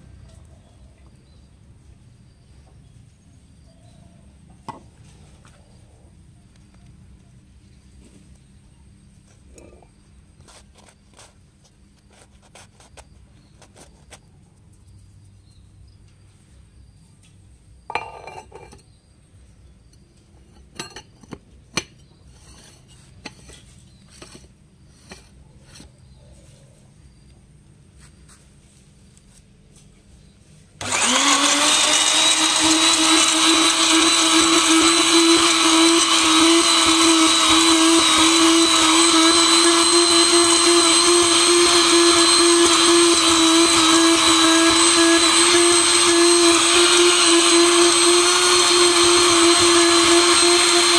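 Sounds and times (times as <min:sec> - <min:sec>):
electric grinder motor whining: 0:30.8 - 0:50.9.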